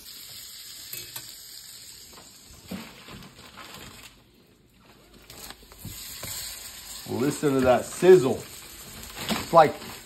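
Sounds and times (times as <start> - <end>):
butter sizzling in a skillet: 0.0 - 2.8, 5.8 - 10.0.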